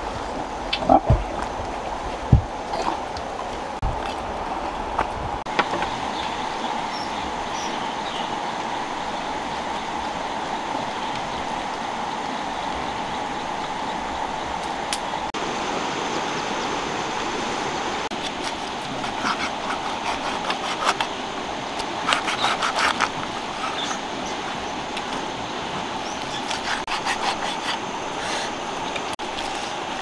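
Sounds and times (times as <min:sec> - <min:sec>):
steady rushing hiss: 0:00.0 - 0:30.0.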